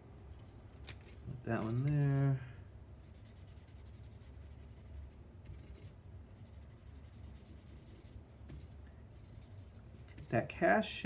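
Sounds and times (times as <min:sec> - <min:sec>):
blending stump rubbing on paper: 0:01.6 - 0:02.4.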